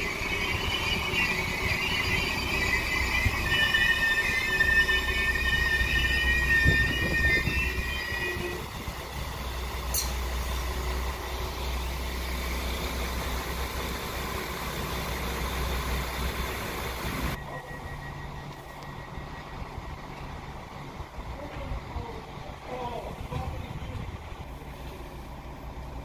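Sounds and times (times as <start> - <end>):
train wheel squeal: 0.0 - 9.2, 9.8 - 10.4, 15.1 - 20.3
train rumbling: 0.0 - 26.0.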